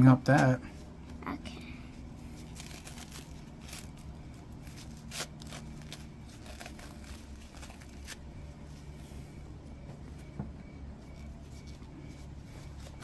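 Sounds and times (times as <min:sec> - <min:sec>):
low steady hum: 0:00.0 - 0:13.0
hands unwrapping an item: 0:02.2 - 0:08.3.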